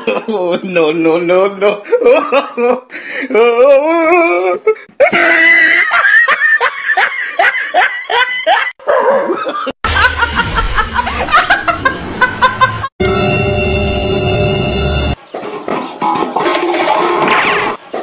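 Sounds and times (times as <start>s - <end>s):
people laughing hard: 1.8s - 2.9s, 5.0s - 13.0s.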